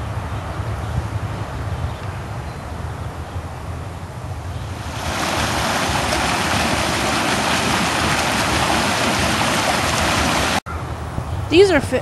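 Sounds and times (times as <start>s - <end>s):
stream rushing over rocks: 4.7s - 10.6s.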